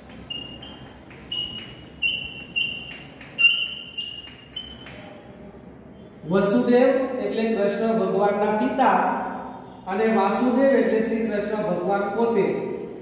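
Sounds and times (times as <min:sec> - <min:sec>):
chalk squeaking on a chalkboard: 0:00.0 - 0:05.2.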